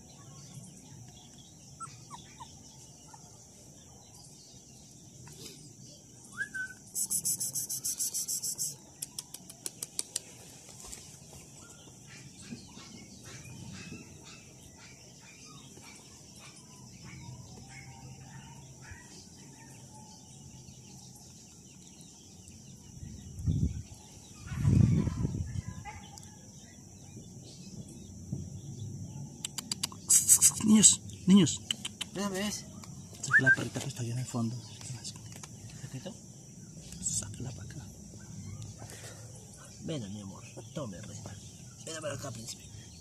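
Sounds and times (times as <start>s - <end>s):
high bird trill: 0.0s - 3.6s, 6.2s - 9.4s, 29.4s - 33.8s
bird chirps: 0.0s - 43.0s.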